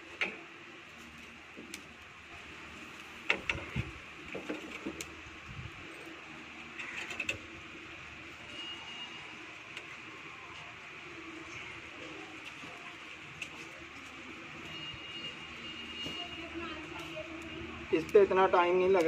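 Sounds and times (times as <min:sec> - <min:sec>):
wire grilling basket clanking: 0:03.1 - 0:05.2, 0:05.8 - 0:07.6.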